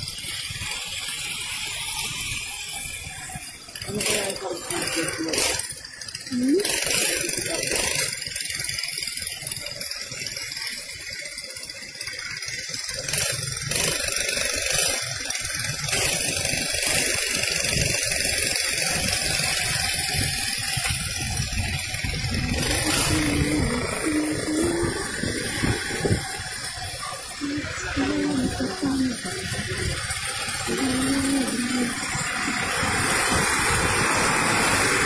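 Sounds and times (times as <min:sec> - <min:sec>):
motorcycle engine: 0:00.0 - 0:35.0
wind rumbling on microphone: 0:17.6 - 0:35.0.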